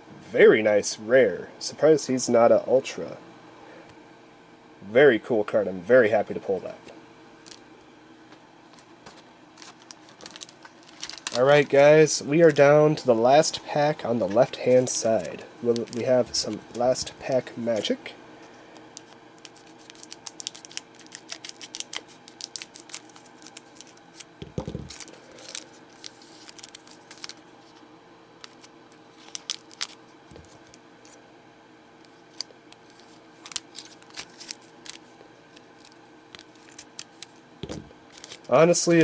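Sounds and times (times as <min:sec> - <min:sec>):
wrapper crinkling: 0:09.6 - 0:11.8, 0:19.0 - 0:27.8, 0:28.4 - 0:30.7, 0:32.2 - 0:38.6
scissors snipping wrapper: 0:19.0 - 0:24.3.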